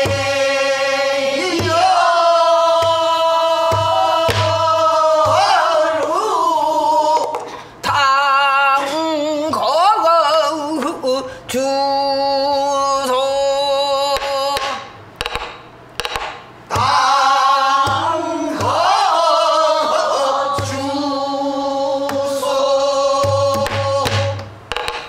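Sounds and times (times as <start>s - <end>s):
barrel drum strokes: 0.0s - 6.1s, 14.2s - 21.2s, 22.0s - 25.0s.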